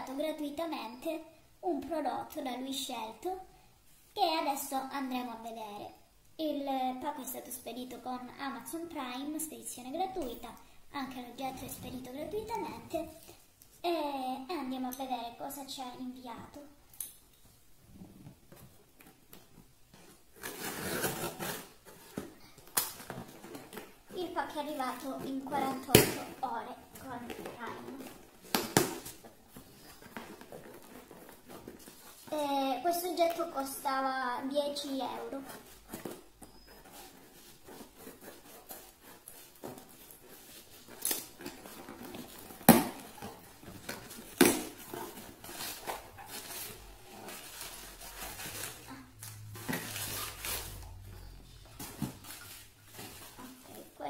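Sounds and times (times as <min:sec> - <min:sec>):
cardboard and paper rustling: 0:18.1 - 0:34.1, 0:34.7 - 0:54.0
handling sounds: 0:35.2 - 0:54.0.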